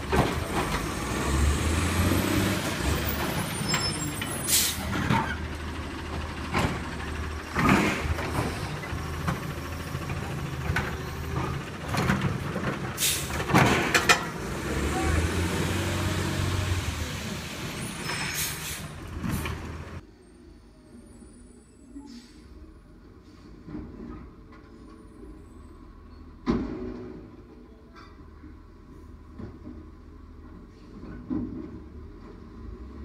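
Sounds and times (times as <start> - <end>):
garbage truck diesel engine running: 0.0 - 20.0
air brake hisses: 4.4 - 4.9, 13.0 - 13.4, 18.2 - 19.0, 21.9 - 22.6.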